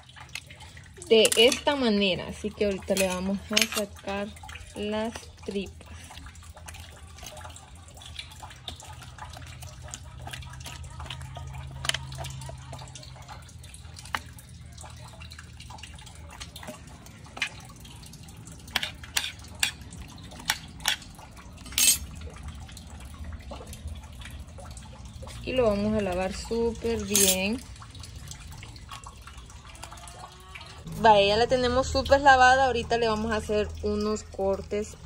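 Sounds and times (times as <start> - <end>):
spoon scraping fish guts: 2.7 - 14.7, 16.2 - 22.2
spoon clicking against bones: 20.4 - 22.1.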